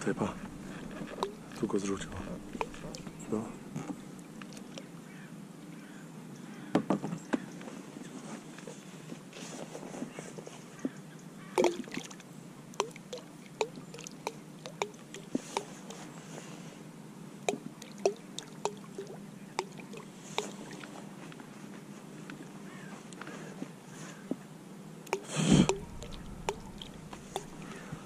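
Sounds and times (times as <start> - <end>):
bait plopping into water: 0.4 - 1.4, 2.2 - 3.1, 11.6 - 12.2, 25.1 - 27.8.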